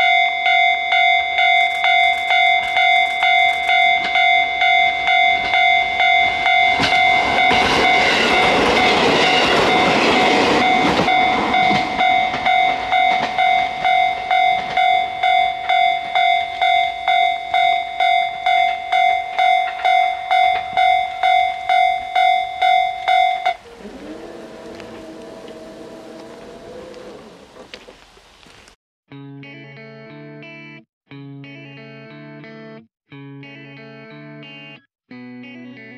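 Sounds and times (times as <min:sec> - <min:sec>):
level crossing warning bell: 0:00.0 - 0:27.4
railcar running noise: 0:01.0 - 0:28.0
rail clatter: 0:01.6 - 0:04.3, 0:06.3 - 0:16.4, 0:23.0 - 0:28.0.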